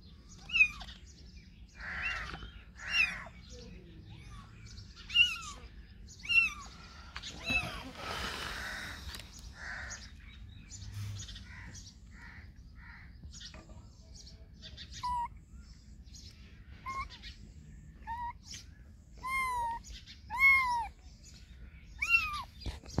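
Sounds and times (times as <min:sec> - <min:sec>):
kitten mewing: 0:19.2 - 0:21.0, 0:22.0 - 0:22.5.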